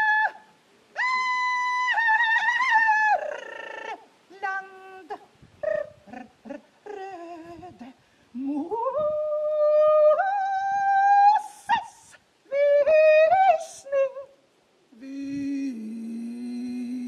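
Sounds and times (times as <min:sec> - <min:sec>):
wordless singing voice: 0:00.0 - 0:17.0
breaths between phrases: 0:08.0 - 0:08.4.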